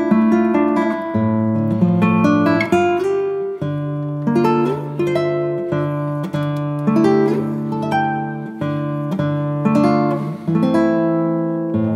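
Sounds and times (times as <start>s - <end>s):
acoustic guitar plucking chords: 0.0s - 11.9s.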